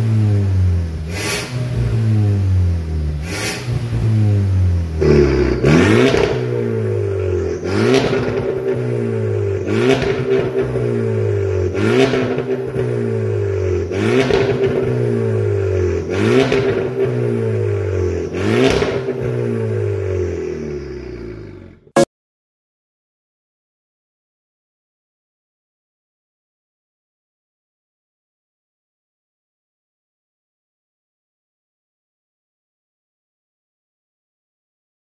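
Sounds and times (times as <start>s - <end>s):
car engine revving through exhaust: 0.0s - 22.0s.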